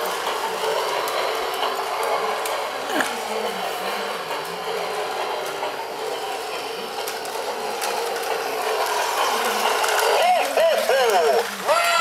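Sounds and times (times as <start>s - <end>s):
toy train running on track: 0.0s - 12.0s.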